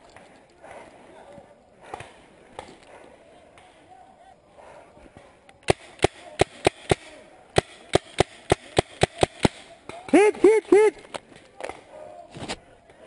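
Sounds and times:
paintball marker firing: 0:05.6 - 0:10.2.

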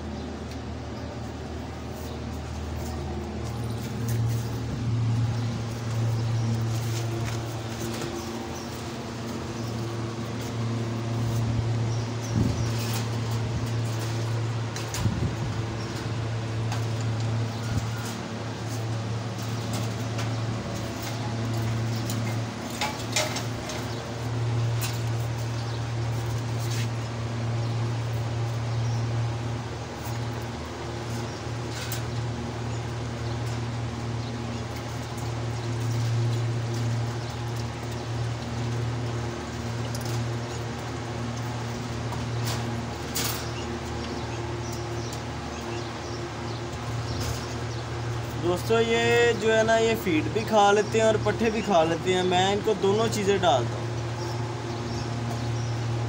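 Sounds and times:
steady low hum: 0:00.0 - 0:56.0
wire cage rattling: 0:02.8 - 0:48.7.

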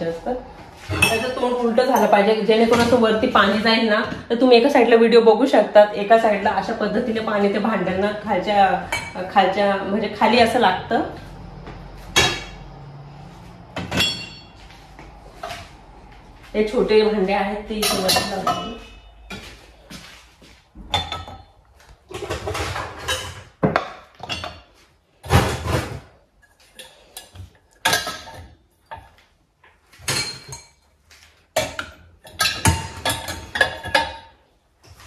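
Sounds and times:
dishes clattering in a rack: 0:00.8 - 0:03.5, 0:13.8 - 0:14.6, 0:17.7 - 0:19.5, 0:20.8 - 0:26.1, 0:26.7 - 0:29.1, 0:30.0 - 0:30.8, 0:31.6 - 0:34.4.

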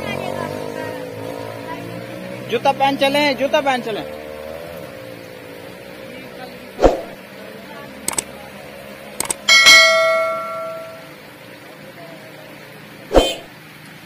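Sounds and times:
notification bell ding: 0:09.4 - 0:11.1.

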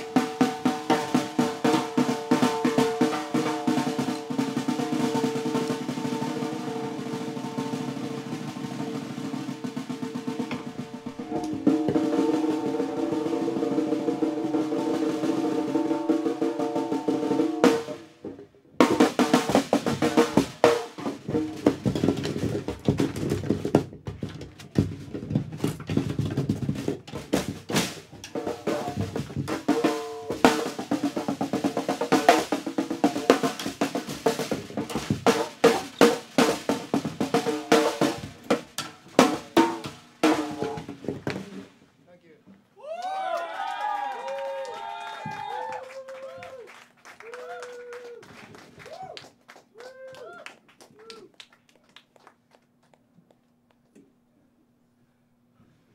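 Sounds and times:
snare drum: 0:00.0 - 0:41.7.

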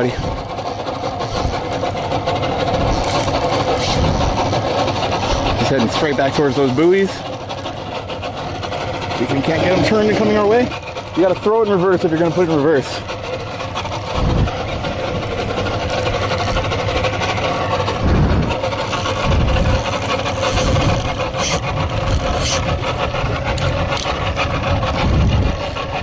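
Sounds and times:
outboard motor running: 0:00.0 - 0:26.0
rasping mechanical noise: 0:00.0 - 0:26.0
wind buffeting microphone: 0:01.3 - 0:07.2, 0:12.7 - 0:26.0.

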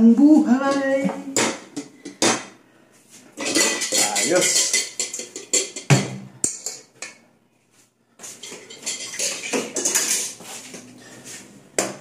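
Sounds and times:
dishes clinking and clattering: 0:00.7 - 0:02.6, 0:03.3 - 0:07.3, 0:08.2 - 0:10.9.

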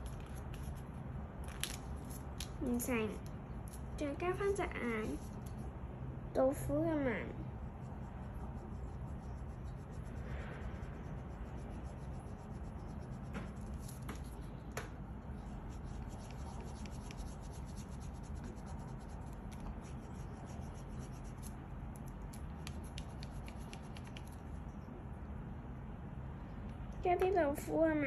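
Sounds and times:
pencil scratching on paper: 0:07.7 - 0:14.5, 0:15.6 - 0:21.6.

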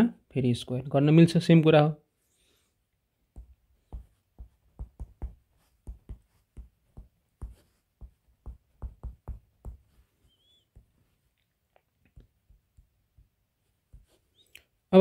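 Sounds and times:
stylus tapping on glass screen: 0:03.4 - 0:10.0.

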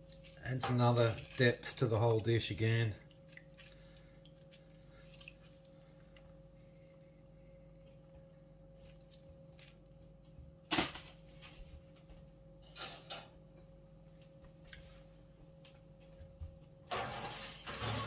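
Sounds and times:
lemon squeezing squelches: 0:00.0 - 0:10.3
faint hum: 0:00.0 - 0:18.0.

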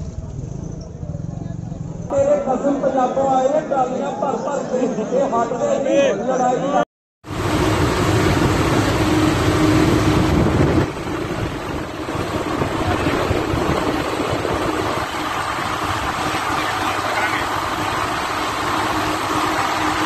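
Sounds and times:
road rumble: 0:00.0 - 0:02.2, 0:07.2 - 0:20.0
tractor diesel engine running: 0:07.3 - 0:20.0
wind noise: 0:07.4 - 0:20.0.

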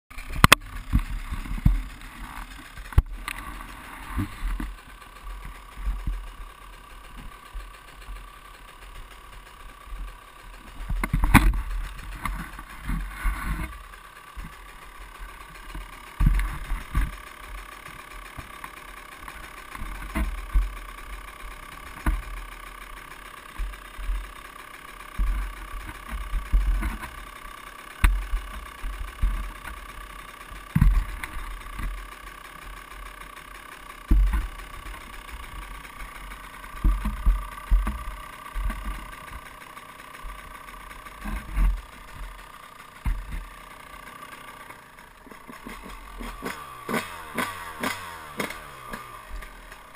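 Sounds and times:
sharp clicks: 0:00.1 - 0:06.2.

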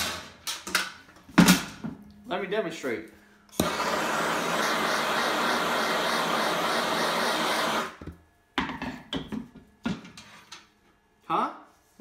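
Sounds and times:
blowtorch hissing: 0:03.6 - 0:08.0.

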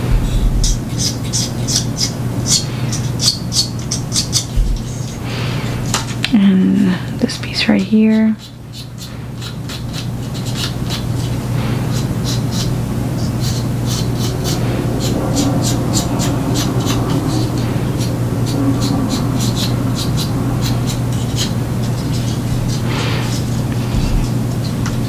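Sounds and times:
steady low hum: 0:00.0 - 0:25.0
fingertip scratching on plastic: 0:07.8 - 0:25.0.

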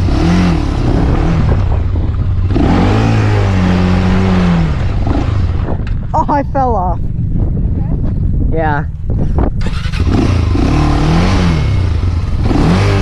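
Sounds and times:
quad engine revving: 0:00.0 - 0:05.8, 0:09.6 - 0:13.0.

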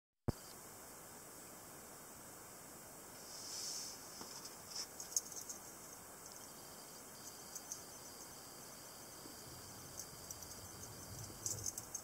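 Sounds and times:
ball-chain rattling: 0:10.0 - 0:12.0.

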